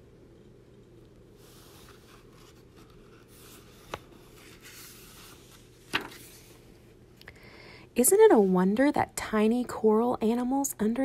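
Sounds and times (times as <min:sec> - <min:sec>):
book pages rustling: 0:01.1 - 0:06.8.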